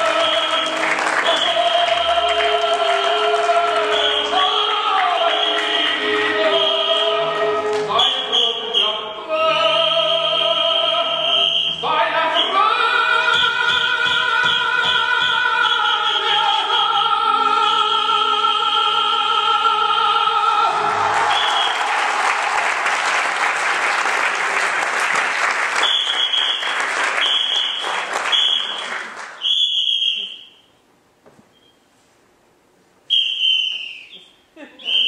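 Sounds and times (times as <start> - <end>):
audience applause: 0.0 - 5.9, 20.7 - 29.4
operatic music: 0.0 - 11.3
short high whistle blasts: 29.4 - 30.7, 33.1 - 34.3.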